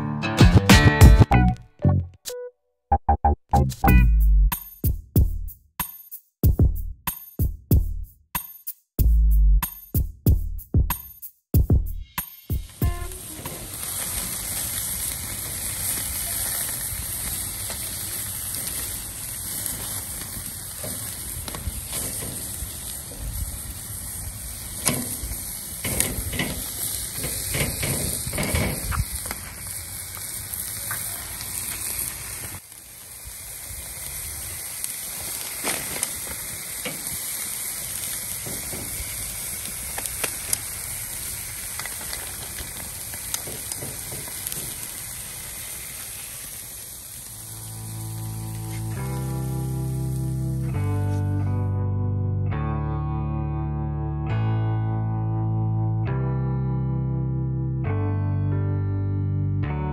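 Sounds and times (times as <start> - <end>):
steak sizzling: 12.5 - 51.6.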